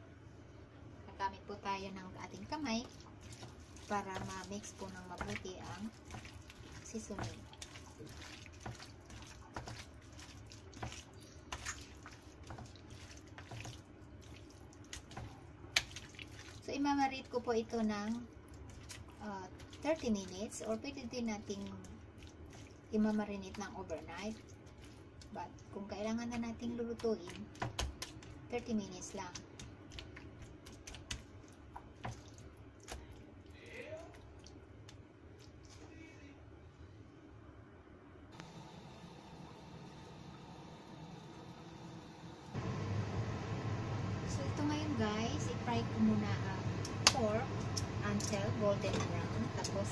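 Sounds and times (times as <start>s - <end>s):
hands kneading wet meat: 2.3s - 36.2s.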